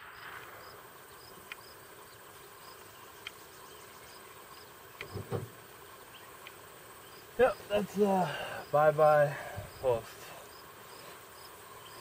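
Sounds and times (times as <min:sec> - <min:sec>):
faint hiss: 0:00.0 - 0:12.0
insects chirping: 0:00.0 - 0:12.0
faint clicks: 0:01.4 - 0:01.7, 0:03.2 - 0:03.4, 0:04.9 - 0:05.3, 0:06.4 - 0:06.6.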